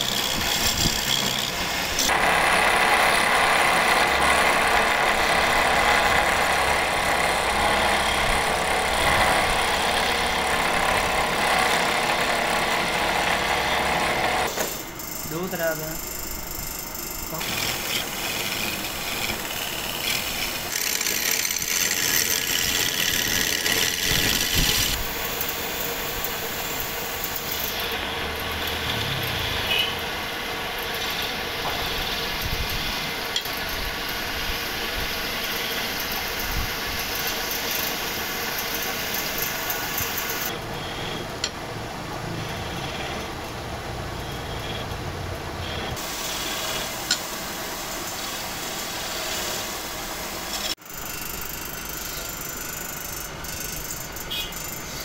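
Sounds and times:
chisel scraping spinning wood: 0.0 - 30.0
wood lathe motor hum: 0.0 - 41.5.

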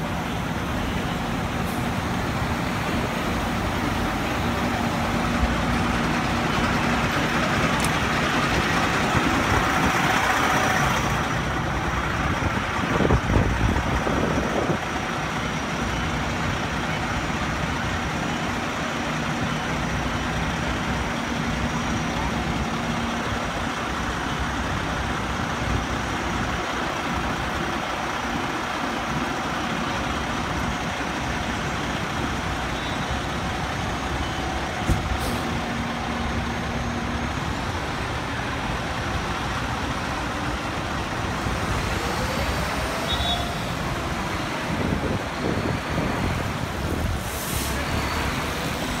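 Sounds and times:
bus passing: 0.0 - 49.0
fire engine diesel engine: 0.0 - 49.0
street traffic: 0.0 - 49.0
short air hiss: 35.2 - 35.5, 47.2 - 47.8.

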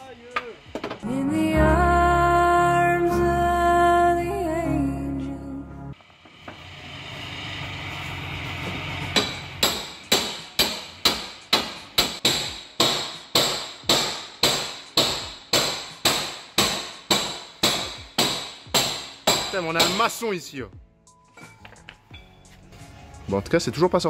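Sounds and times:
hammer blows on steel: 9.2 - 20.2.

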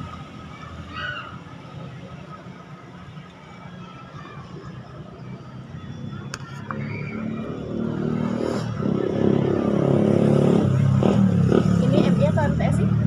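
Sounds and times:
vehicle engine passing: 4.6 - 13.0.

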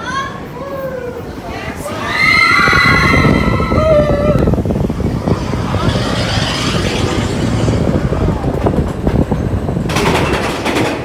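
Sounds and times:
roller coaster rumbling: 0.1 - 11.0
wheels clattering on rails: 4.4 - 11.0.

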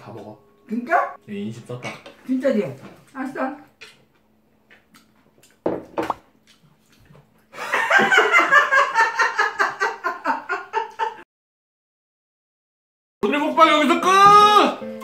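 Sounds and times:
woman and man laughing: 7.6 - 11.2.

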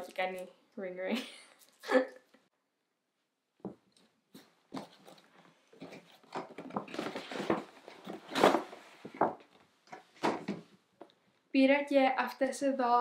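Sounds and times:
paper bag rustling: 6.0 - 9.1.

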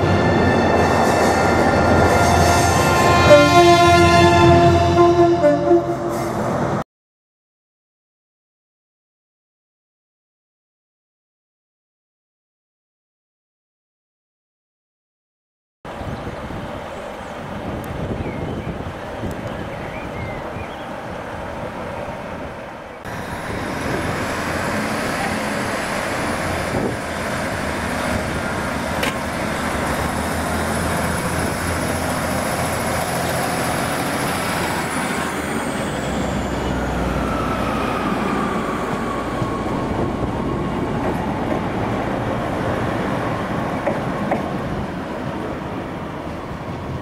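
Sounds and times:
train rolling: 0.0 - 6.8, 16.0 - 47.0.

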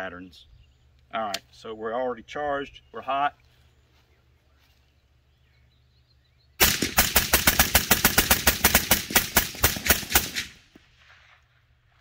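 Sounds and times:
suppressed rifle rapid shots: 6.6 - 10.7.

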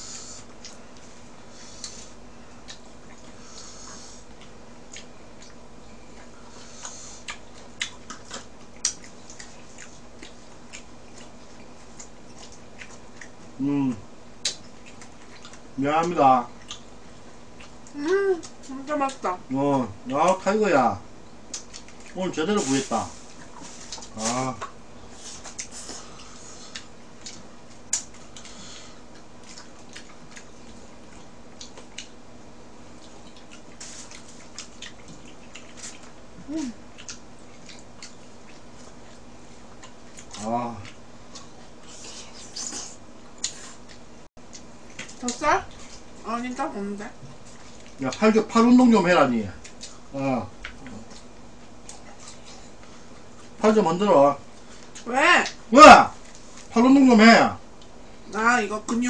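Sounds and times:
person chewing food: 0.0 - 19.2, 21.4 - 46.2, 47.2 - 48.2, 49.5 - 53.6, 54.5 - 55.6
faint low hum: 0.0 - 59.0.

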